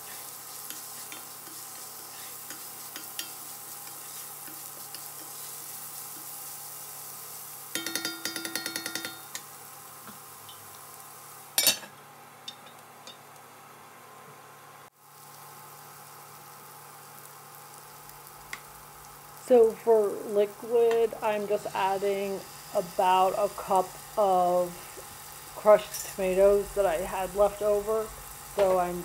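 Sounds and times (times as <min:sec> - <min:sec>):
wooden spoon stirring and scraping: 0:00.0 - 0:06.6
vegetables sizzling in a pot: 0:00.0 - 0:29.0
rapid ringing taps: 0:07.8 - 0:09.4.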